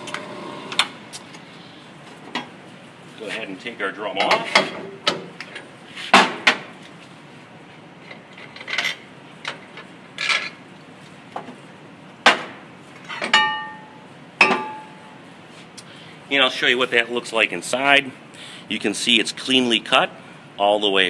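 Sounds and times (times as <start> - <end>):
metal clanks and knocks: 13.1 - 15.0.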